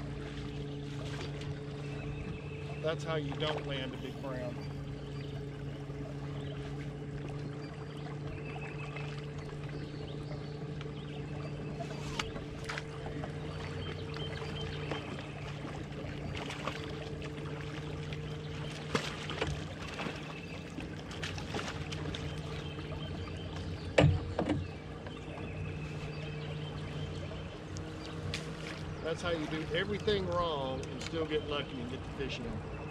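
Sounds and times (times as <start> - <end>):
boat motor humming: 0.0 - 32.9
water lapping on metal hull: 0.0 - 32.9
knocks on boat hull: 23.8 - 24.7.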